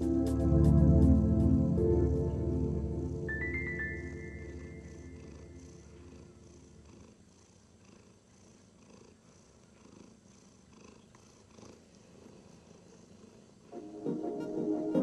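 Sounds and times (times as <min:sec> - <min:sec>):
kitten purring: 0:03.0 - 0:13.7.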